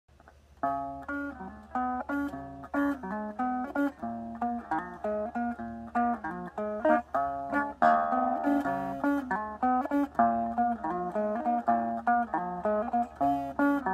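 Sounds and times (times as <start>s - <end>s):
electric guitar picked notes: 0.2s - 13.9s
guitar chord ringing: 0.6s - 13.9s.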